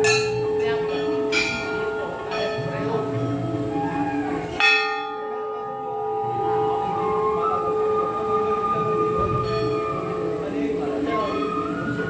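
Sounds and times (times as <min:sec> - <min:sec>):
brass bell ringing: 0:04.6 - 0:06.4.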